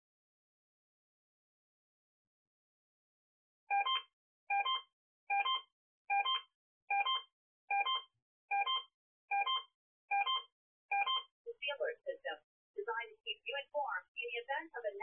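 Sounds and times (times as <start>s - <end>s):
electronic multi-tone beeps: 3.7s - 11.3s.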